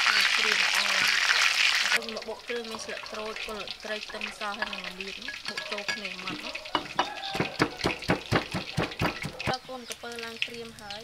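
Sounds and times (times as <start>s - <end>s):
pestle pounding in stone mortar: 5.3s - 9.6s.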